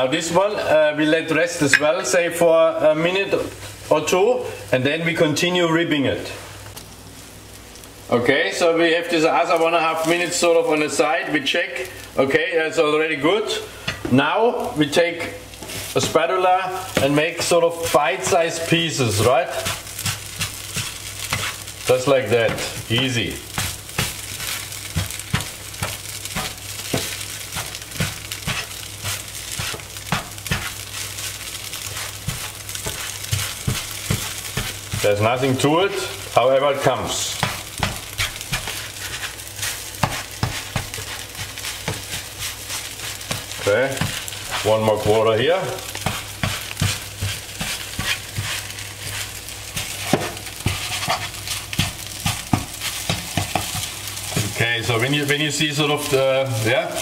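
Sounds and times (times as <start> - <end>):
pancake sizzling: 6.4 - 57.0
spatula knocking on pan: 22.4 - 30.8, 32.2 - 35.0, 37.4 - 38.8, 40.0 - 42.3, 46.0 - 54.6.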